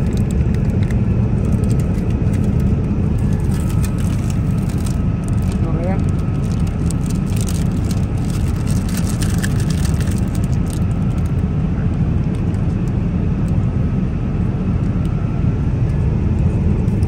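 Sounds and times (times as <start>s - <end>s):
airplane cabin roar: 0.0s - 17.0s
foil lid and plastic tray rustling: 3.2s - 5.6s.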